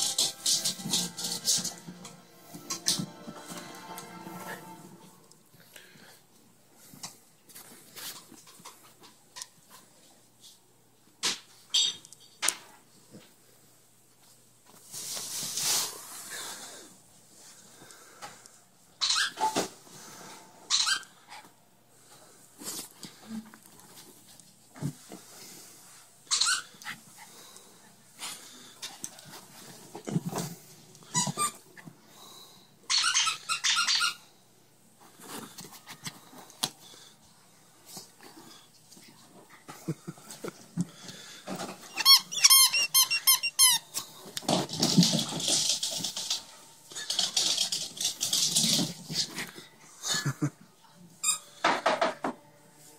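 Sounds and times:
squeaky toy squeaking: 19.0s - 19.4s, 20.7s - 21.1s, 26.3s - 26.7s, 32.9s - 34.2s, 41.9s - 43.9s.

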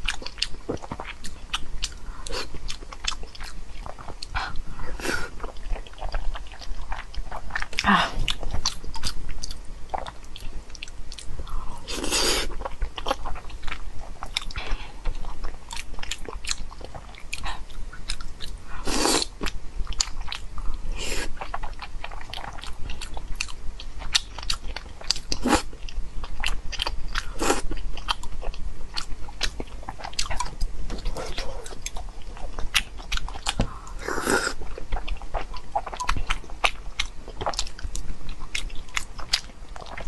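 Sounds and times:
wet chewing and lip smacking: 21.4s - 40.0s.

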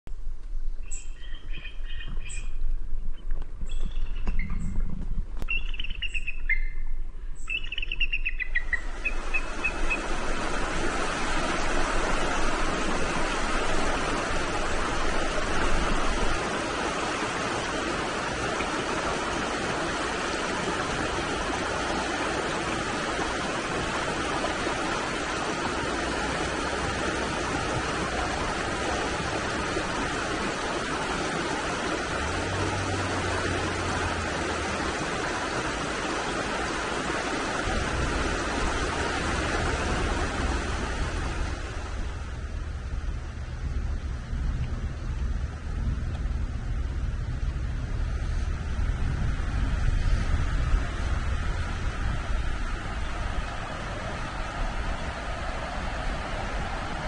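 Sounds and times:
short bird calls: 0.9s - 2.6s
river rushing over rocks: 8.7s - 44.0s, 45.0s - 57.0s.

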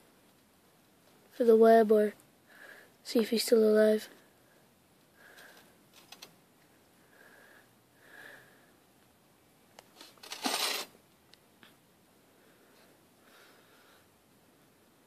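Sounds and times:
short rustling: 9.9s - 10.9s.

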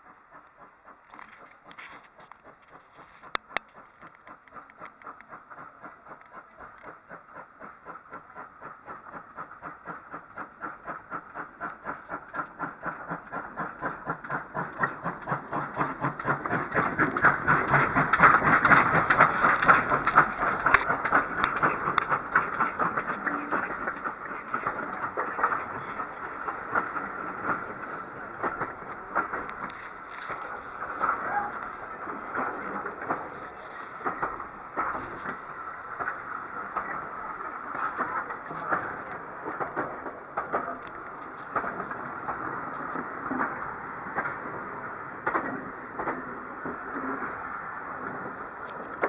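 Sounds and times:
clickety-clack of coach wheels: 0.0s - 49.0s
steam locomotive passing: 0.0s - 49.0s.

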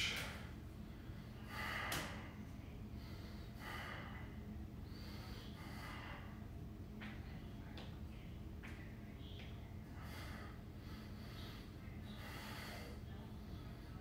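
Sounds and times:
man breathing forcefully: 0.0s - 2.4s, 3.0s - 6.5s.

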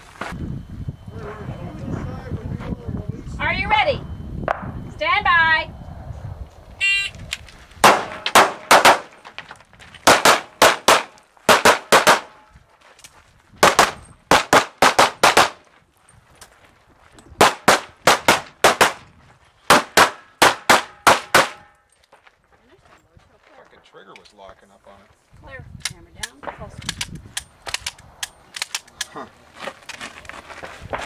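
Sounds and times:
handgun shots: 7.8s - 9.2s, 10.0s - 12.4s, 19.7s - 21.7s.

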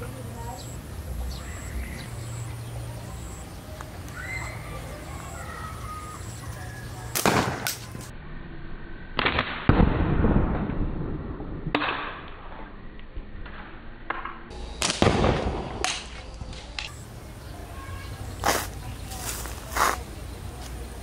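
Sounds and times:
sharp crack: 7.1s - 8.1s, 9.1s - 17.0s
loud bang with low rumble: 9.2s - 12.3s.

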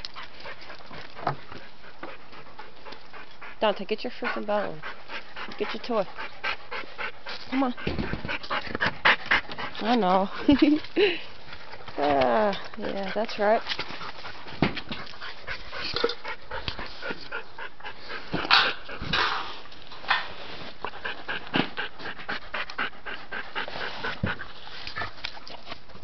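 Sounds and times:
dog panting: 0.0s - 19.2s, 20.7s - 26.0s
dog pawing and scraping: 7.3s - 17.3s.

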